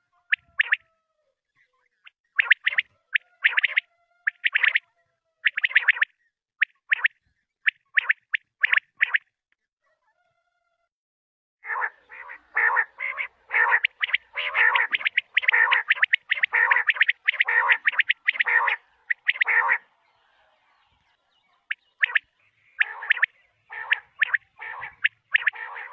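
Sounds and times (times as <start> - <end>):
quail rattling chatter: 0.3 - 0.9, 2.4 - 4.8, 5.4 - 6.1, 11.6 - 25.9.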